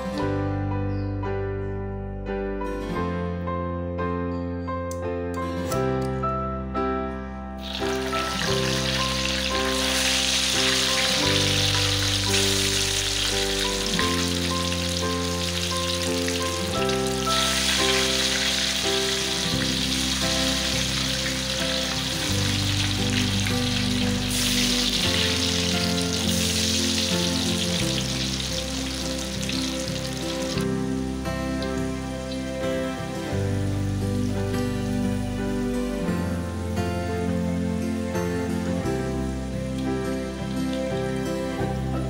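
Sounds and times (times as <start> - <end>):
background music: 0.0 - 42.0
potatoes sizzling in hot oil: 7.6 - 36.8, 39.0 - 41.9.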